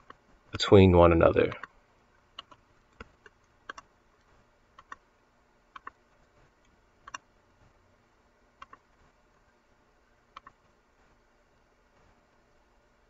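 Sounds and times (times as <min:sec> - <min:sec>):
faint mouse clicks: 0:01.5 - 0:01.8, 0:02.4 - 0:05.0, 0:05.7 - 0:07.2, 0:08.6 - 0:08.9, 0:10.3 - 0:10.7.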